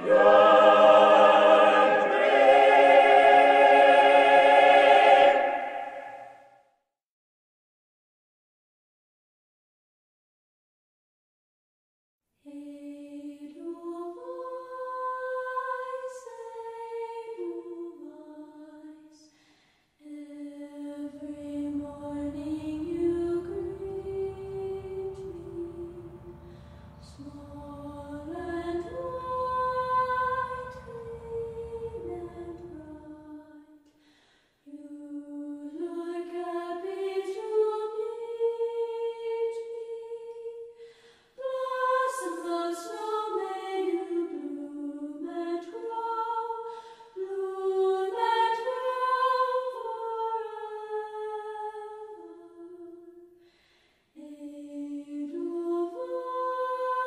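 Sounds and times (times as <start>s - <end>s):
low hum: 0.0s - 6.4s, 20.6s - 33.8s
wordless vocal melody: 0.0s - 6.4s, 20.1s - 33.8s.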